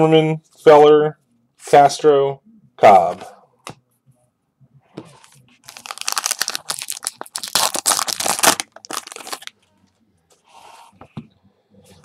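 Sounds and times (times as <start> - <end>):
wrapper crinkling: 5.6 - 9.6.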